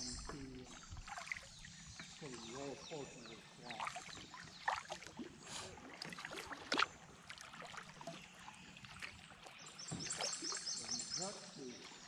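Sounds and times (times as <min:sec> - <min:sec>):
paddle dipping and dripping: 0:00.0 - 0:12.0
paddle splashes: 0:00.0 - 0:12.0.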